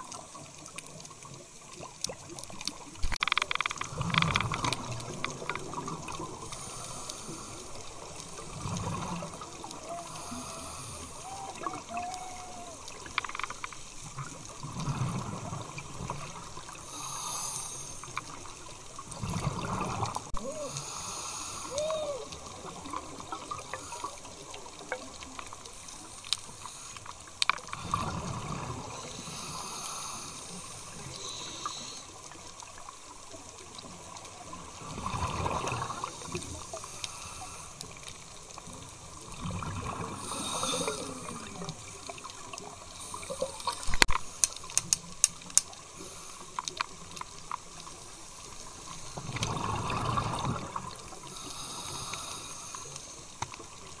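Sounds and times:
underwater bubbles gurgling: 0.0s - 54.0s
sharp clicks: 3.0s - 5.7s, 13.0s - 13.8s, 43.7s - 45.7s.

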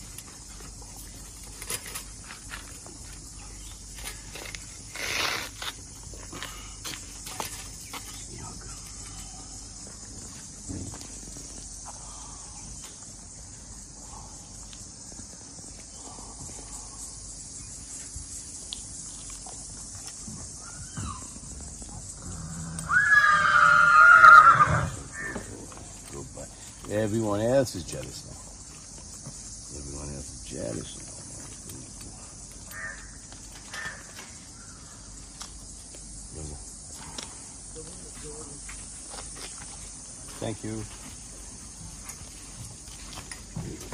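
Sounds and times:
high-pitched insect chirring: 0.0s - 40.9s
high-pitched hiss: 0.0s - 43.9s
bird calling: 20.6s - 21.5s, 22.4s - 25.6s, 32.7s - 35.1s.

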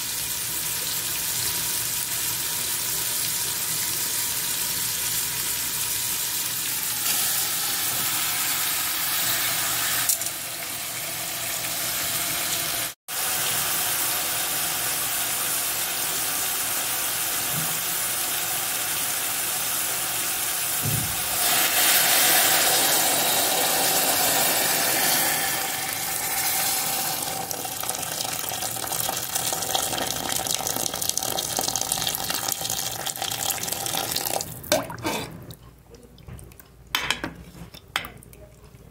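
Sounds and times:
tap water running into metal pot: 20.8s - 35.2s.

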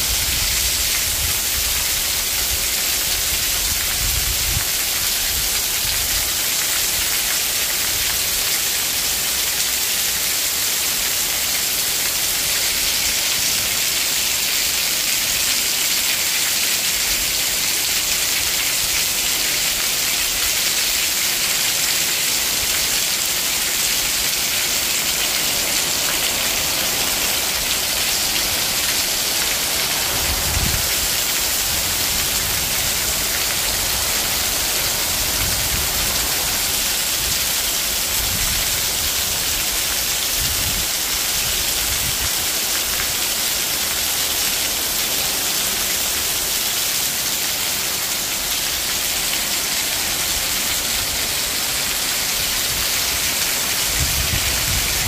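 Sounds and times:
heavy rain hissing: 0.0s - 55.0s
water pouring in streams: 0.0s - 55.0s.

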